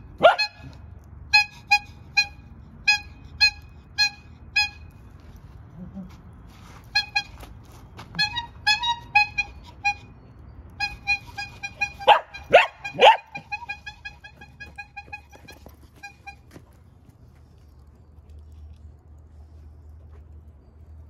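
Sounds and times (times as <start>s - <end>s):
dog barking: 0.2s - 0.6s, 12.0s - 13.4s
bicycle bulb horn honking: 0.2s - 5.0s, 6.9s - 7.5s, 8.2s - 10.1s, 10.8s - 16.5s.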